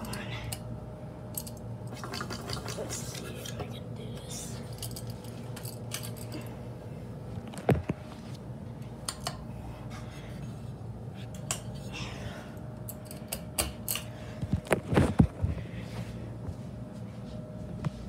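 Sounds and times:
steady low hum: 0.0s - 18.0s
metal pull chains jingling: 4.6s - 6.5s.

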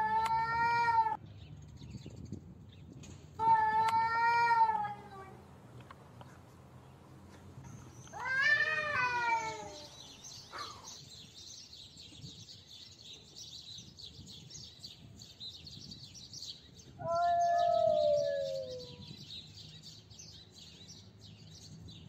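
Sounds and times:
cat yowling: 3.4s - 5.4s, 8.2s - 9.9s, 17.0s - 19.0s.

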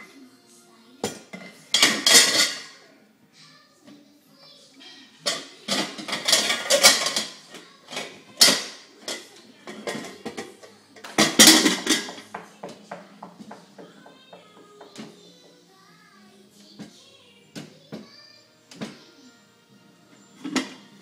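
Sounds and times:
metal pans clanking: 1.0s - 2.8s, 5.2s - 15.3s, 20.4s - 20.9s.

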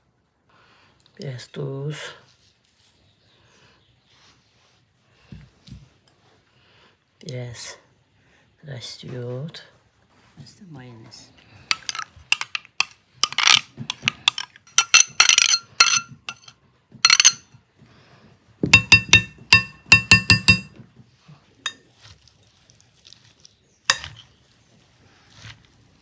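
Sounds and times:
fork and spoon clinking on glass bowl: 11.7s - 17.5s, 18.8s - 20.7s, 23.9s - 24.2s.

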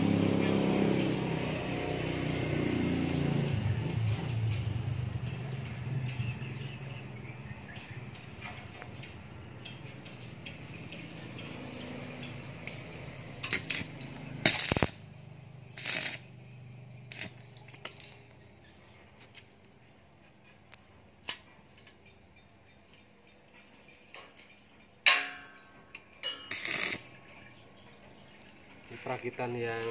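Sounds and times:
sharp metal knocks: 23.0s - 27.0s.

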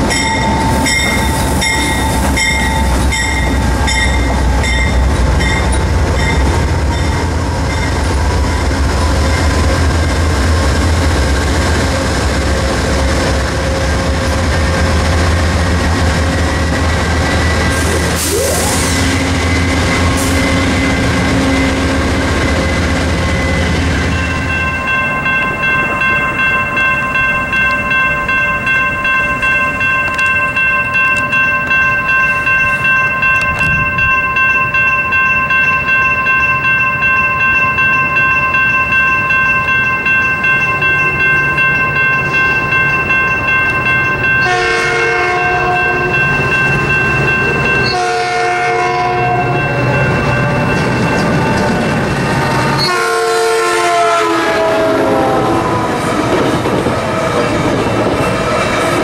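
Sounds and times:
railroad crossing bell ringing: 0.0s - 56.0s
train horn blasts: 44.4s - 46.2s, 47.8s - 49.6s, 52.5s - 56.0s.

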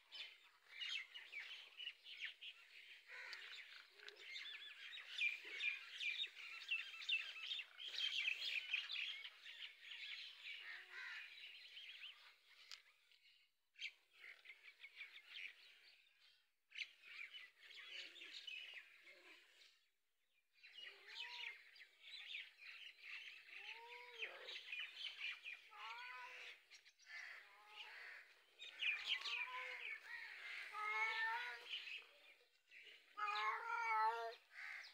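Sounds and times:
small birds chirping: 0.0s - 19.9s, 20.6s - 34.9s
rising-and-falling bird calls: 22.4s - 34.9s.

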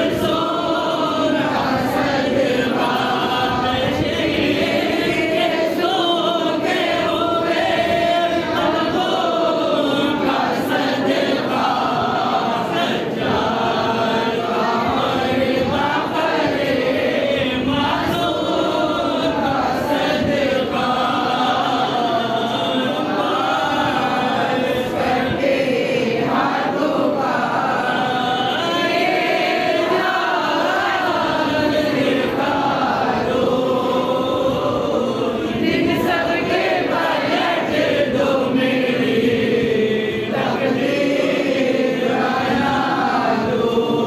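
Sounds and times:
many voices chanting: 0.0s - 44.0s.

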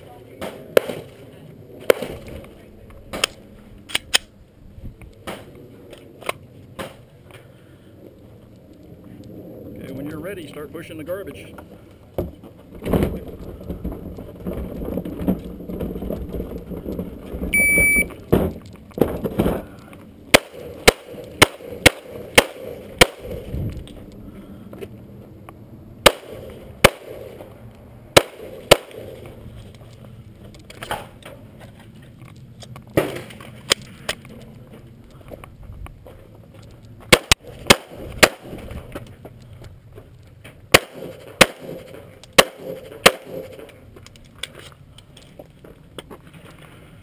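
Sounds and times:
garbage can rumbling over gravel: 12.3s - 17.6s
shot timer beep: 17.6s - 18.1s
pistol shots: 20.3s - 23.4s, 26.0s - 27.4s, 28.2s - 29.2s, 37.1s - 38.5s, 40.7s - 43.6s.

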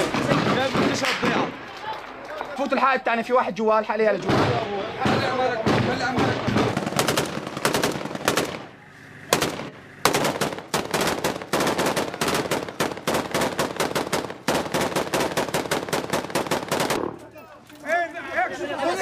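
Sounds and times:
automatic gunfire: 4.3s - 8.7s, 9.3s - 17.2s.

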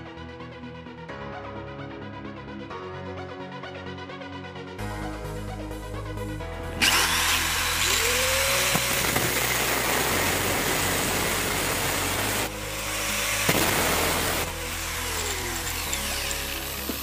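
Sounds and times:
background music: 0.0s - 17.0s
metal grinding on cutting disc: 6.8s - 9.7s, 11.7s - 17.0s
power tool motor whine: 6.8s - 17.0s.

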